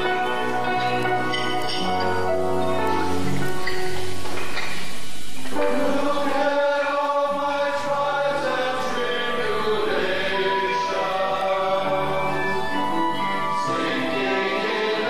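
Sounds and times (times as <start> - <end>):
low musical accompaniment: 0.0 - 15.0
male chorus singing: 5.6 - 15.0.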